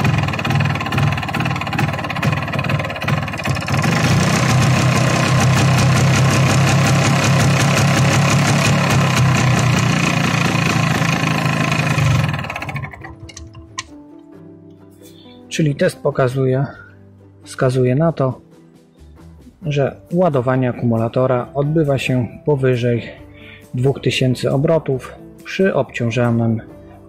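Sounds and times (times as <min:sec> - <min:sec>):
two-stroke motorcycle engine running: 0:00.0 - 0:13.6.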